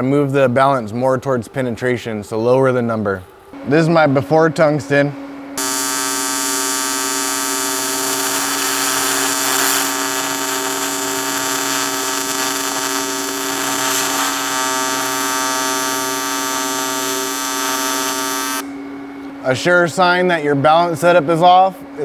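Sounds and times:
welding arc buzzing: 0:05.6 - 0:18.7.

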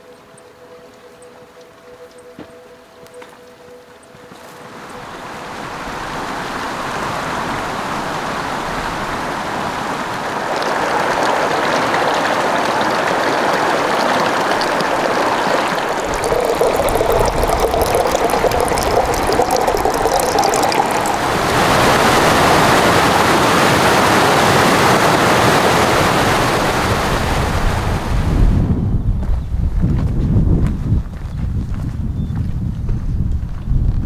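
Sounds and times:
mountain creek running: 0:04.6 - 0:27.6
water trickling into plastic bottle: 0:10.2 - 0:22.3.

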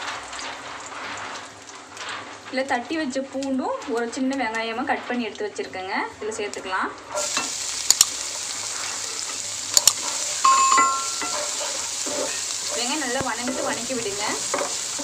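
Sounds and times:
onion sizzling in hot oil: 0:00.0 - 0:15.0
spatula knocking against pan: 0:10.5 - 0:12.4.

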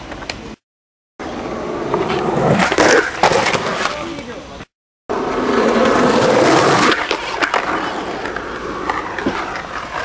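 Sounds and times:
skateboard wheels rolling on pavement: 0:01.2 - 0:10.0
skateboard clacks: 0:05.7 - 0:10.0.

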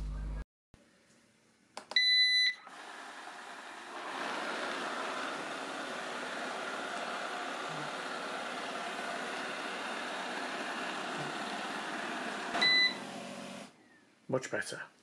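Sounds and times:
high beep: 0:02.0 - 0:02.6, 0:12.6 - 0:13.0
robot vacuum running: 0:02.6 - 0:13.7.

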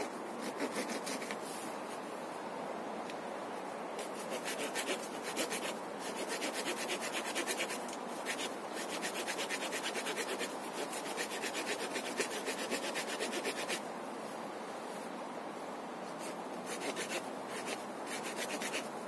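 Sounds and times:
saw rasping through branch: 0:04.0 - 0:13.8, 0:16.2 - 0:18.9.

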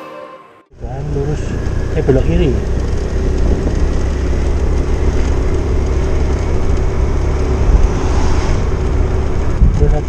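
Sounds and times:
road rumble: 0:00.7 - 0:10.0
vehicle engine cruising: 0:00.7 - 0:10.0
wind noise on microphone: 0:03.2 - 0:04.1, 0:06.4 - 0:10.0.

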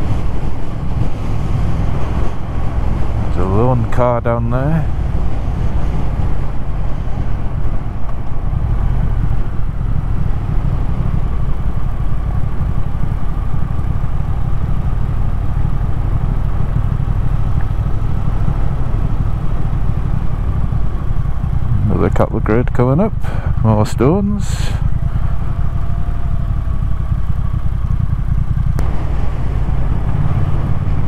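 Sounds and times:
motorcycle engine running: 0:00.0 - 0:31.0
wind rumble on microphone: 0:00.0 - 0:31.0.

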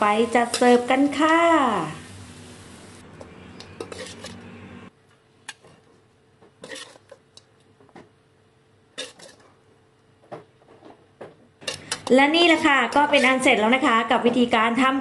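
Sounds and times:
metal spatula scraping a wok: 0:00.1 - 0:01.2, 0:03.2 - 0:04.5, 0:06.6 - 0:07.2, 0:09.0 - 0:09.5, 0:11.6 - 0:13.8.

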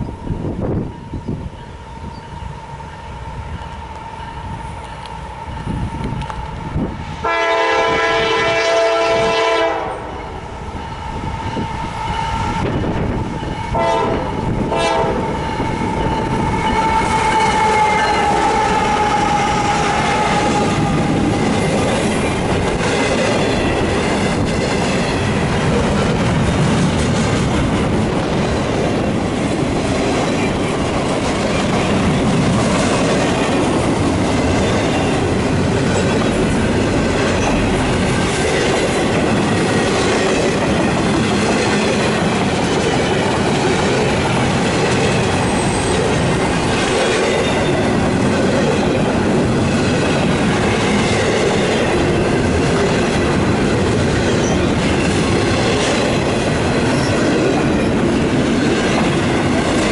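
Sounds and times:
train wheels rumbling and clacking: 0:00.0 - 0:59.9
train horn blasts: 0:07.2 - 0:10.4, 0:13.5 - 0:21.4.

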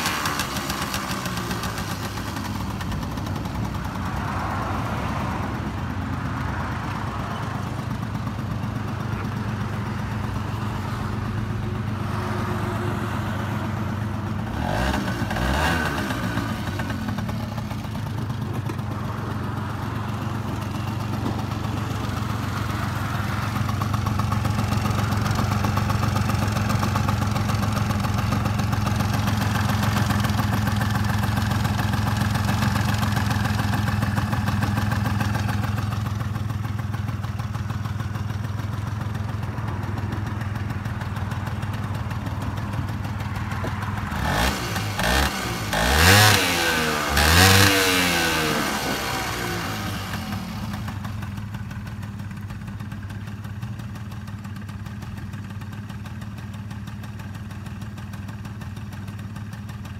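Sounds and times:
scooter engine idling: 0:00.0 - 0:59.9.

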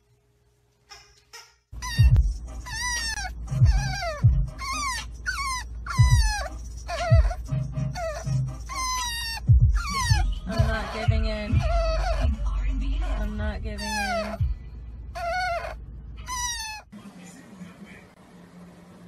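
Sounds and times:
background music with low beat: 0:00.9 - 0:14.8
puppy whining: 0:01.8 - 0:16.9.

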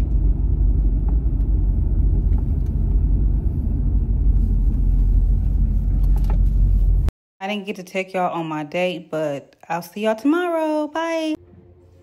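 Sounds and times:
car interior road and engine rumble: 0:00.0 - 0:07.1.

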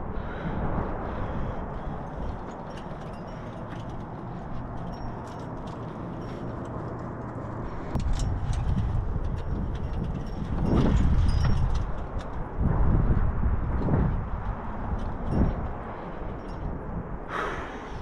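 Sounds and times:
wind rumbling on microphone: 0:00.0 - 0:18.0
light clicks and clinks: 0:02.0 - 0:12.5, 0:14.9 - 0:16.8.

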